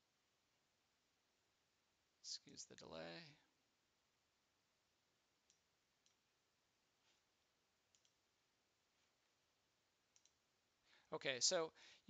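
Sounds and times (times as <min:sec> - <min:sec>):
faint computer clicks: 0:07.9 - 0:08.2, 0:10.1 - 0:10.4.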